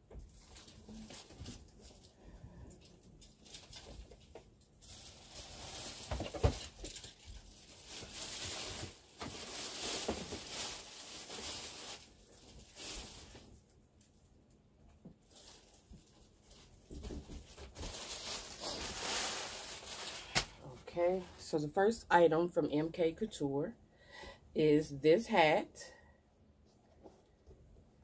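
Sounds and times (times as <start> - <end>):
fabric rustling: 17.8 - 21.4.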